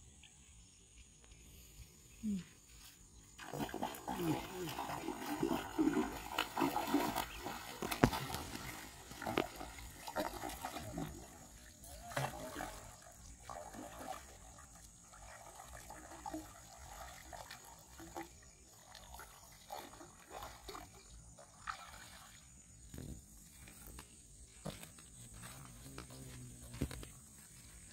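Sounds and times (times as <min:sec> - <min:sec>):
fish splashing at water surface: 0:03.4 - 0:14.6.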